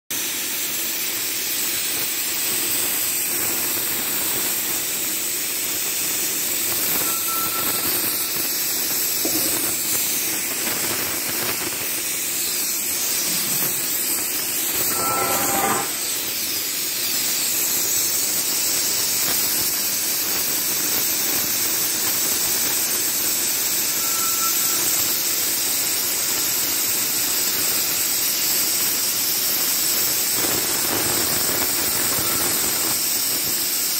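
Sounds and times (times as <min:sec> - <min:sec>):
cutting torch hissing: 0:00.2 - 0:33.9
brief pitched squeal: 0:06.9 - 0:08.5, 0:14.7 - 0:16.3, 0:23.9 - 0:25.0, 0:32.1 - 0:32.7.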